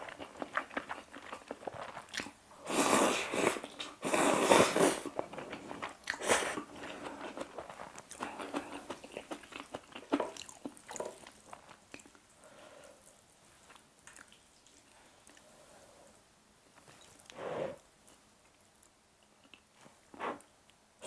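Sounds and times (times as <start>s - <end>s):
wet chewing: 0.0s - 2.4s, 5.0s - 12.2s.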